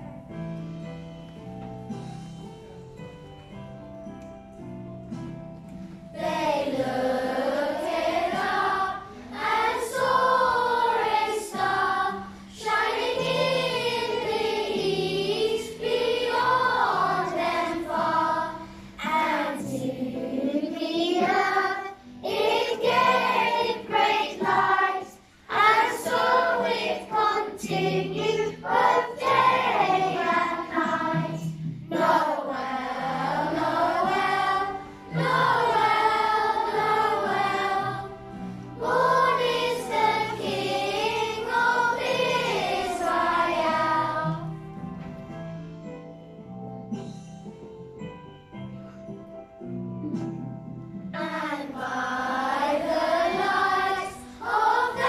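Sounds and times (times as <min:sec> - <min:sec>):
children's choir singing a carol: 0:06.1 - 0:44.6, 0:51.1 - 0:55.0.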